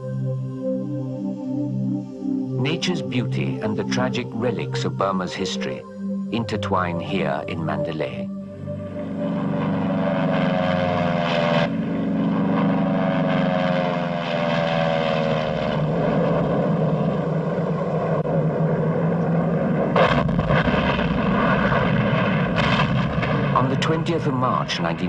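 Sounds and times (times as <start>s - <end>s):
propeller aircraft engines droning: 0.0s - 25.0s
sudden blast: 9.2s - 24.2s.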